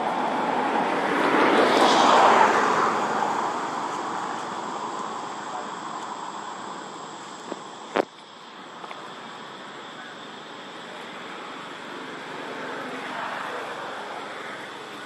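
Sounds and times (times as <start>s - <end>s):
vehicle passing: 0.0s - 4.8s.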